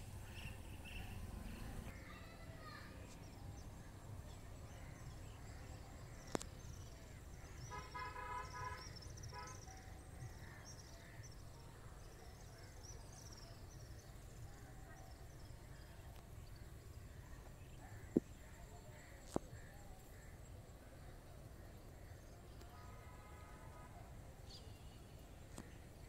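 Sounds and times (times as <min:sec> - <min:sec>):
small birds chirping: 0:00.0 - 0:22.8
distant vehicle horn: 0:07.6 - 0:09.7, 0:22.8 - 0:25.1.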